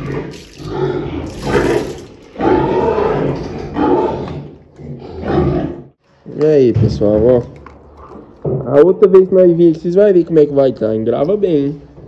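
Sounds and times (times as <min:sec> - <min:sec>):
pig grunting: 0:00.0 - 0:06.0.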